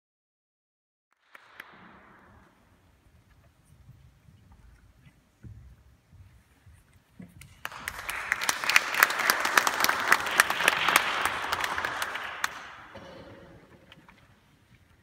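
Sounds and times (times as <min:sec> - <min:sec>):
audience applauding: 0:01.2 - 0:02.7, 0:07.5 - 0:13.7.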